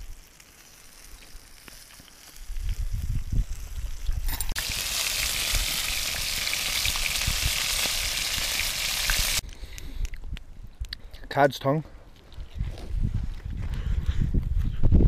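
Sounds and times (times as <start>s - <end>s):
fish sizzling in hot oil: 0.0s - 9.4s.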